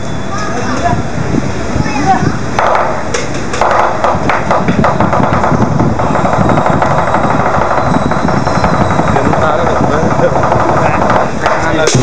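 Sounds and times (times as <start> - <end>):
big drum beating: 2.6 - 12.0.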